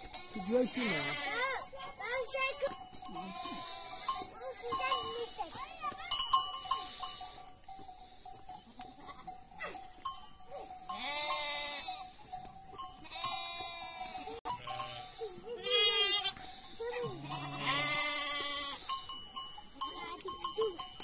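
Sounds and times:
sheep bleating: 0:00.6 - 0:01.6, 0:03.1 - 0:04.3, 0:08.8 - 0:09.7, 0:10.9 - 0:12.0, 0:13.0 - 0:18.9.

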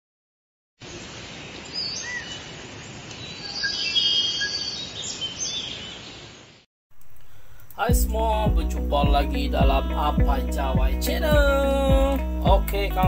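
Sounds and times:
birds chirping: 0:00.8 - 0:11.5
steady outdoor hiss: 0:00.8 - 0:13.0
bird trilling call: 0:03.3 - 0:06.2, 0:07.1 - 0:07.8.

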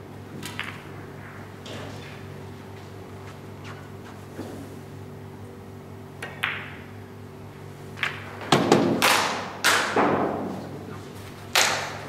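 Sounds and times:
steady low hum: 0:00.0 - 0:12.0
snooker balls clicking together: 0:00.4 - 0:01.0, 0:06.2 - 0:06.9, 0:08.0 - 0:10.0.

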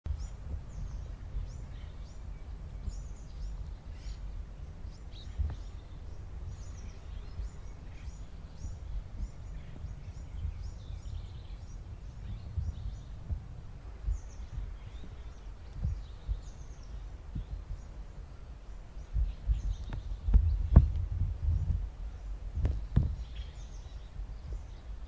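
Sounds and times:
birds chirping and trilling: 0:00.1 - 0:25.0
low background rumble: 0:00.1 - 0:25.0.

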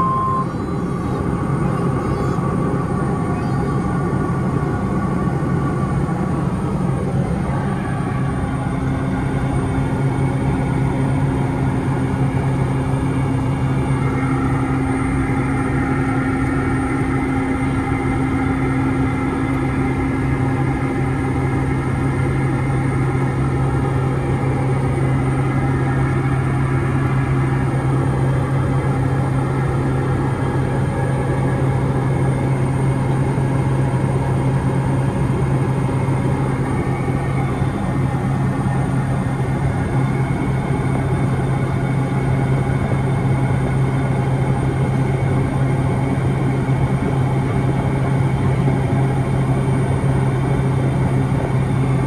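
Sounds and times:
high tone: 0:00.0 - 0:00.8
turboprop engine drone: 0:00.0 - 0:52.0.

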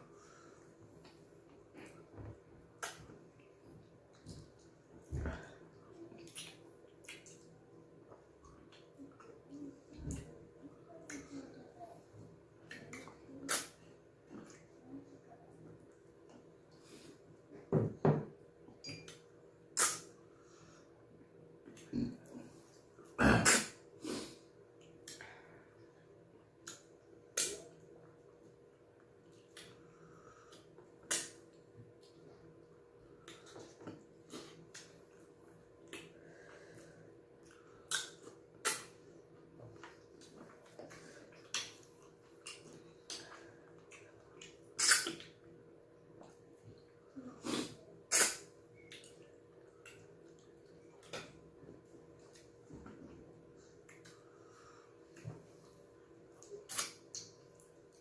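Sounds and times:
mouth clicks and smacks: 0:02.8 - 0:03.1, 0:06.2 - 0:07.5, 0:12.7 - 0:13.8, 0:19.8 - 0:20.1, 0:26.6 - 0:27.8, 0:31.0 - 0:32.2, 0:37.4 - 0:39.0, 0:39.8 - 0:43.3, 0:43.9 - 0:45.4, 0:47.5 - 0:50.4, 0:56.4 - 0:57.7.

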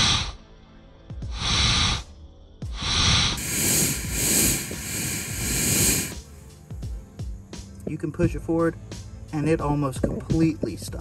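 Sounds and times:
gas hissing from a pipe crack: 0:01.3 - 0:02.1, 0:02.7 - 0:06.6.

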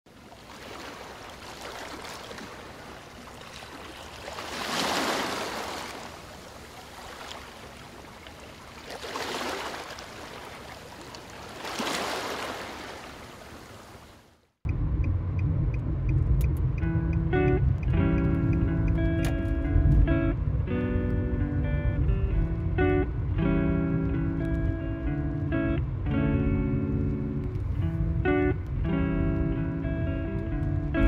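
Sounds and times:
strummed guitar music: 0:16.3 - 0:31.0.

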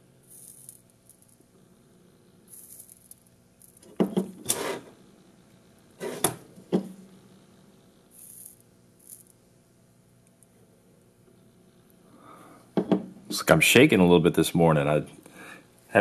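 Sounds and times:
knocks and clatter on workbench: 0:03.8 - 0:04.6, 0:06.0 - 0:07.0, 0:12.8 - 0:13.1.

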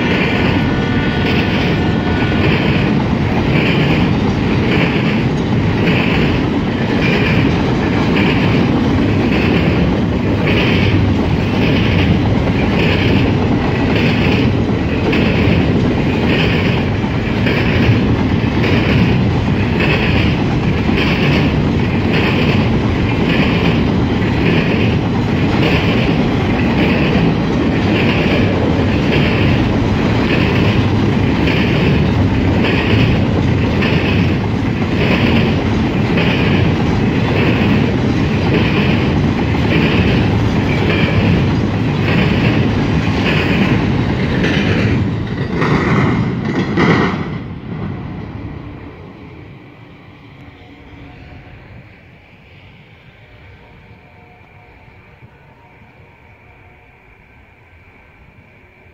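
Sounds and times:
freight train wheels rumbling: 0:00.0 - 0:58.9.

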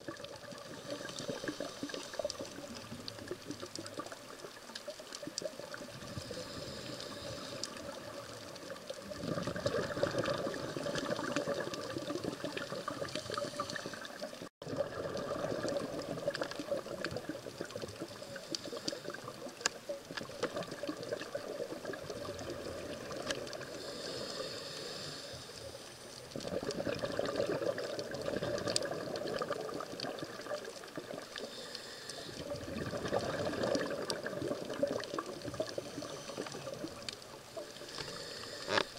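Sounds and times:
bubbling exhale underwater: 0:00.0 - 0:25.0, 0:26.3 - 0:38.9
faint clicks: 0:00.1 - 0:09.2, 0:15.6 - 0:26.8, 0:27.9 - 0:38.9
regulator hiss on inhale: 0:00.5 - 0:04.5, 0:05.9 - 0:09.1, 0:12.8 - 0:14.5, 0:17.7 - 0:20.0, 0:23.5 - 0:26.4, 0:30.5 - 0:32.6, 0:34.7 - 0:38.9.

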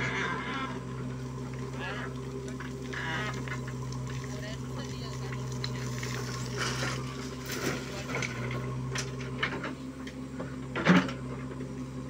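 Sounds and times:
diesel engine running: 0:00.0 - 0:12.0
soil and stones pouring: 0:01.4 - 0:08.5.

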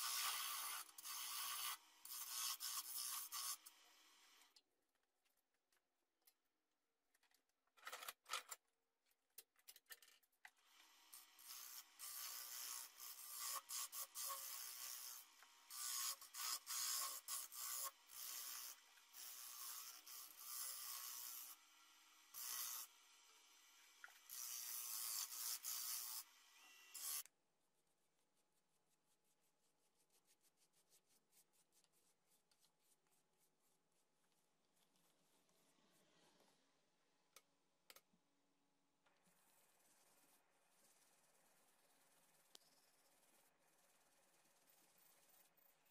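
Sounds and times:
lathe tool scraping wood: 0:00.0 - 0:03.8, 0:11.2 - 0:27.2.

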